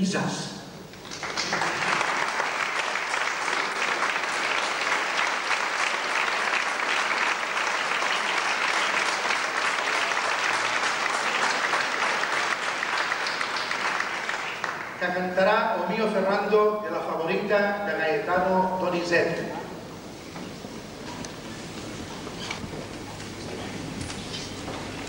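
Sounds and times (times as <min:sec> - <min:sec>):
audience applauding: 0:00.9 - 0:15.2.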